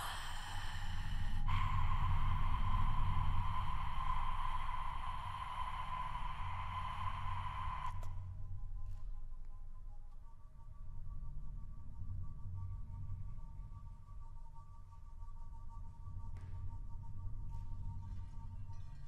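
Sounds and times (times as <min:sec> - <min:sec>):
breathy hiss: 0:00.0 - 0:08.0
low hum: 0:00.0 - 0:14.2.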